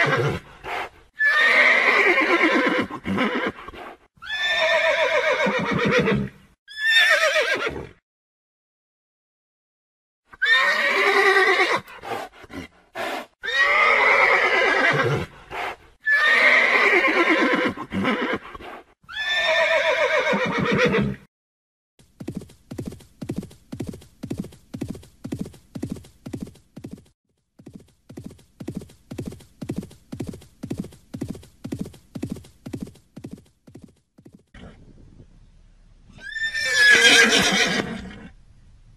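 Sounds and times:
horse whinnying: 0.0s - 8.0s, 10.3s - 11.9s, 13.4s - 15.3s, 16.0s - 21.3s, 36.1s - 38.3s
horse hoofbeats clip-clop: 22.0s - 34.5s.

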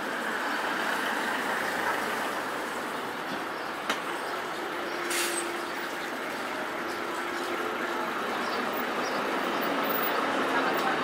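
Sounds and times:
bus humming: 0.0s - 11.0s.

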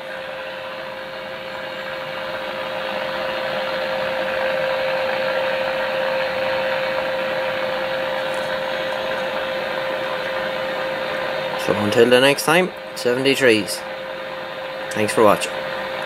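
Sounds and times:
radio receiver hiss: 0.0s - 16.0s.

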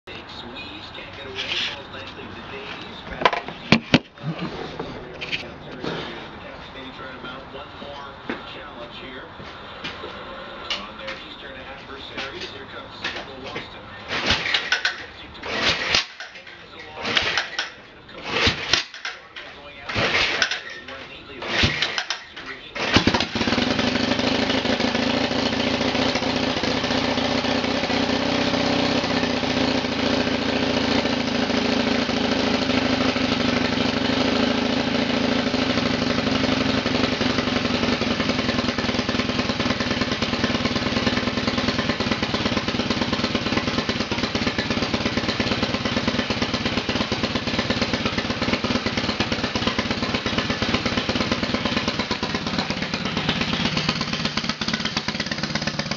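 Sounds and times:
motorcycle engine starting and running: 0.1s - 8.0s, 9.8s - 55.9s.

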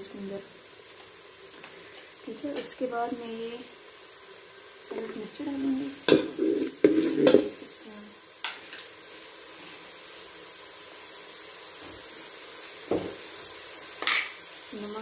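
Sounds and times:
chillies sizzling in oil: 0.0s - 15.0s
spatula scraping metal pot: 6.1s - 7.6s.

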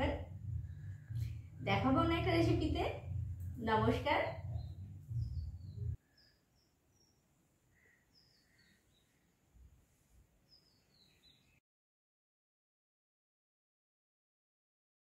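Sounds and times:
faint birds chirping: 0.0s - 11.6s.

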